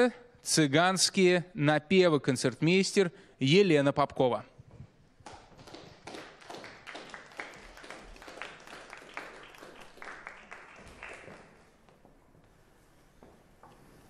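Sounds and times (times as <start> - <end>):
audience applauding: 5.3 - 11.8.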